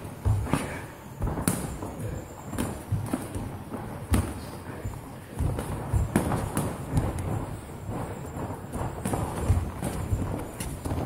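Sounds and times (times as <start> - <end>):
footwork thuds on canvas: 0.0 - 11.0
gloved punches smacking: 0.2 - 4.5.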